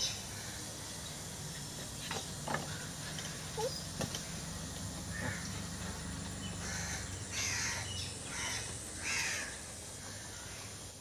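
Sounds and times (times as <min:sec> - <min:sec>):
crow cawing: 0:05.1 - 0:05.5, 0:06.6 - 0:10.7.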